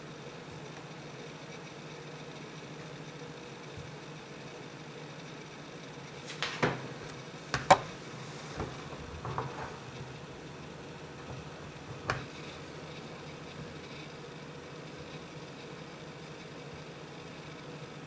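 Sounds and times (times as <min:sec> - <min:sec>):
low steady hum: 0:05.3 - 0:18.0
tablet knocking on tabletop: 0:06.3 - 0:10.1.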